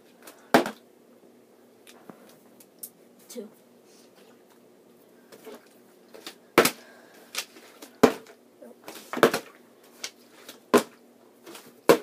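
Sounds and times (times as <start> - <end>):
plastic bottles thudding on wood: 0.5 - 0.8, 6.2 - 6.8, 7.4 - 9.6, 10.7 - 12.0.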